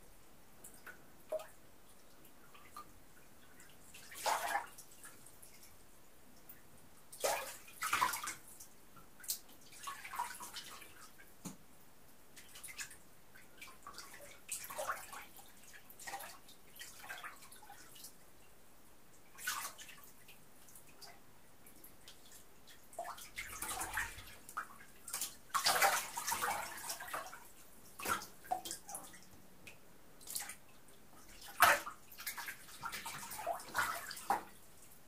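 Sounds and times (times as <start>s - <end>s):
water splashing in bathtub: 3.6s - 5.6s, 7.1s - 11.6s, 12.4s - 18.2s, 19.3s - 21.1s, 21.8s - 35.0s.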